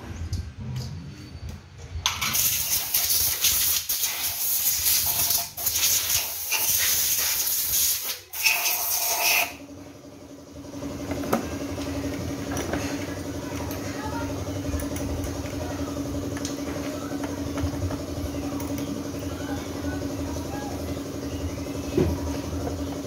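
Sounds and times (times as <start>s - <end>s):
steady motor hum: 0.0s - 23.0s
compressed air hissing: 2.3s - 9.4s.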